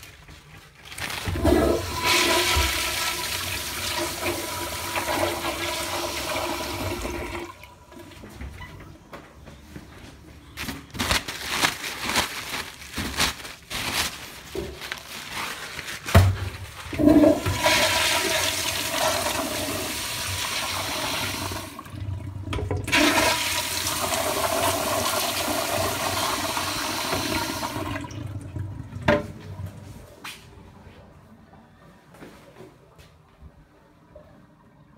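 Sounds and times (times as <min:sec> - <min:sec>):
toilet flushing: 0:01.2 - 0:08.2, 0:16.8 - 0:29.8.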